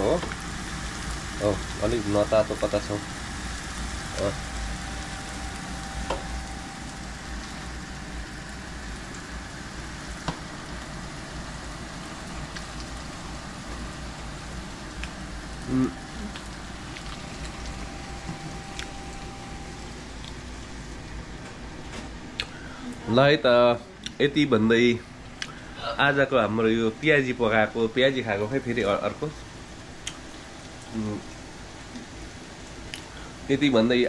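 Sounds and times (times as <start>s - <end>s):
food sizzling in hot oil: 0.0s - 23.2s.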